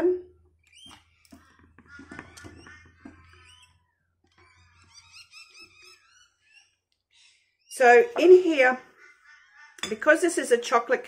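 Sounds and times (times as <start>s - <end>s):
faint high chirping: 0.6s - 8.4s.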